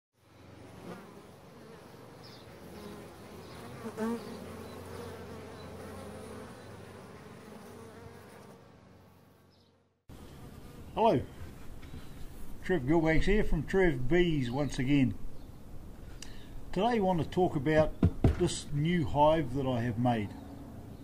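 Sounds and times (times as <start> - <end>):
bees buzzing: 0.2 - 12.4.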